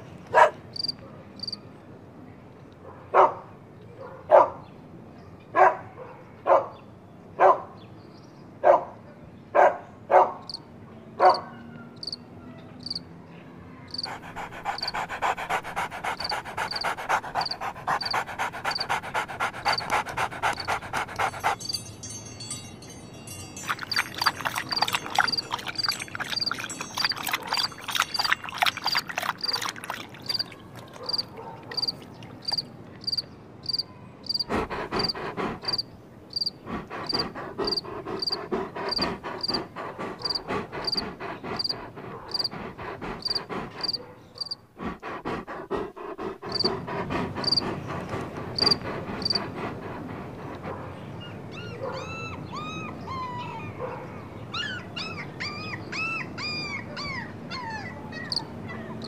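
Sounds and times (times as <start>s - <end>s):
outdoor ambience: 0.0s - 59.0s
crickets chirping: 0.8s - 1.6s, 12.0s - 12.2s, 12.8s - 13.0s, 13.9s - 22.6s, 23.2s - 34.4s, 35.0s - 44.6s, 46.5s - 46.8s, 47.4s - 47.6s, 48.6s - 49.5s.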